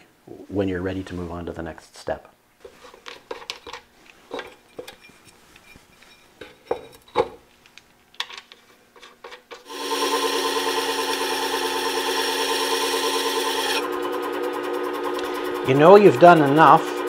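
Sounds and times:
blade rasping on spinning disc: 9.7 - 17.0
lapping machine humming: 9.7 - 17.0.

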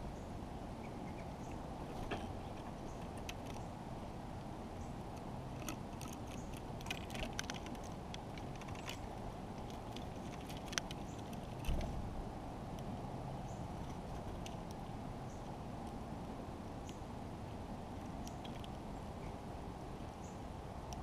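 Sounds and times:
low outdoor rush: 0.0 - 21.0
bird bill cracking seeds: 5.6 - 11.9.

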